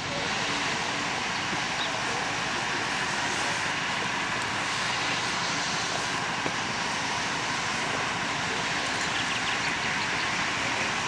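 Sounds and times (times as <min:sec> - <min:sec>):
diesel locomotive engine running: 0:00.0 - 0:11.0.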